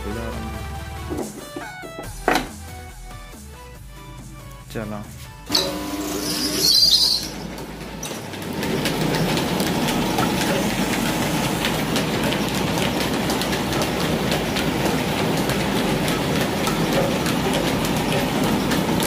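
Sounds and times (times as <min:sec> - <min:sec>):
electric motor starting: 0:05.5 - 0:19.0
flour mill rattling clatter: 0:05.5 - 0:19.0.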